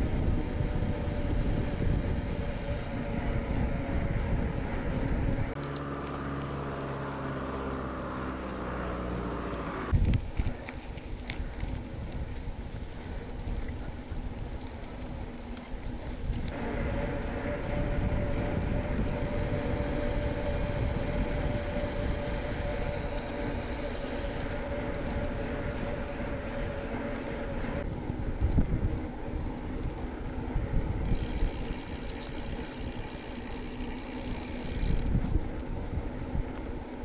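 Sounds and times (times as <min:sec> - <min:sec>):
steady hum: 0:00.0 - 0:05.6, 0:16.5 - 0:37.0
wind rushing over microphone: 0:00.0 - 0:05.6, 0:09.8 - 0:15.3, 0:16.0 - 0:33.4, 0:34.2 - 0:36.8.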